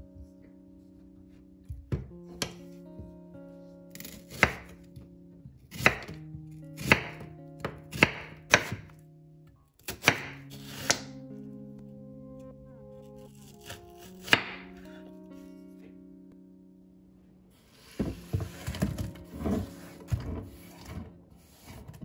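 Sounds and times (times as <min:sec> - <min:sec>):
knife slicing onion on cutting board: 0:06.8 - 0:08.9, 0:09.8 - 0:11.1.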